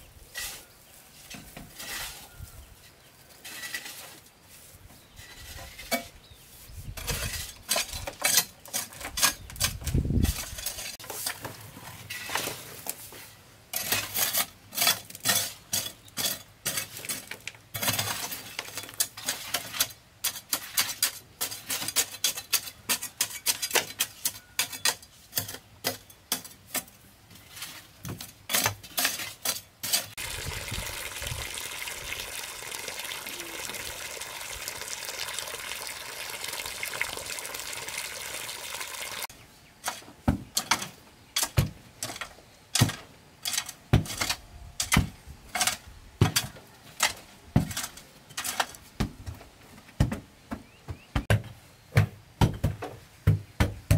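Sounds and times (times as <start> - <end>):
hoe chopping and scraping soil: 0.2 - 2.4, 5.0 - 49.4
water pouring into sand: 30.2 - 39.3.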